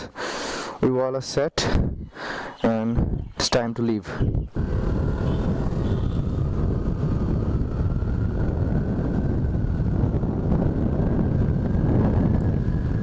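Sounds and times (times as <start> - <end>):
wind rushing over microphone: 1.6 - 13.0
motorcycle engine cruising: 4.4 - 13.0.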